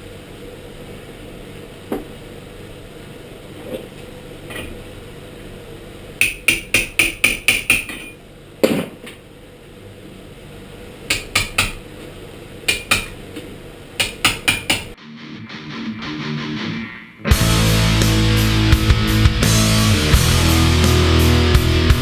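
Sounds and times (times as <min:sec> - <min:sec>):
hammer tapping on metal: 0:06.2 - 0:08.2, 0:11.1 - 0:11.8, 0:12.7 - 0:13.2, 0:14.0 - 0:15.0.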